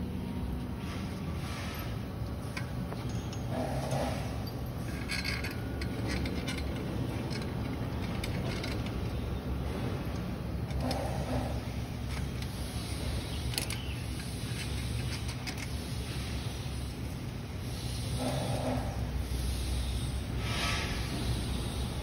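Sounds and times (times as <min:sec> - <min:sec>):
metal tubes clinking and scraping: 0:00.8 - 0:22.0.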